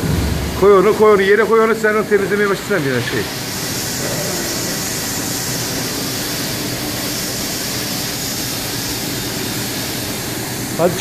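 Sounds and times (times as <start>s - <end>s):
workshop machinery hissing: 0.0s - 11.0s.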